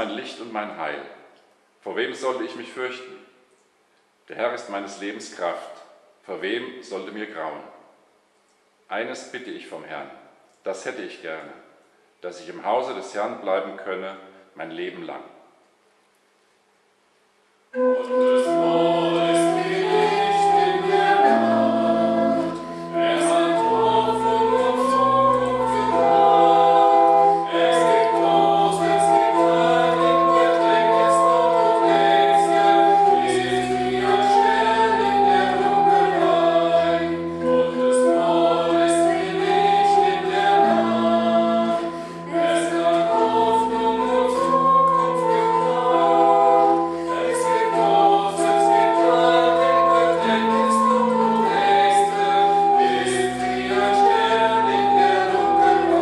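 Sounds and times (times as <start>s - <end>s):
instrumental accompaniment: 17.7s - 56.0s
women singing sacred song: 17.9s - 56.0s.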